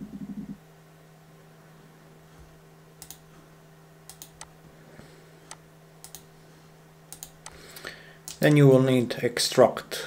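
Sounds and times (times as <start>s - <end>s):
faint low hum: 0.0s - 10.0s
computer mouse clicking: 3.0s - 3.2s, 4.1s - 4.5s, 5.5s - 6.3s, 7.1s - 7.6s, 8.3s - 8.6s.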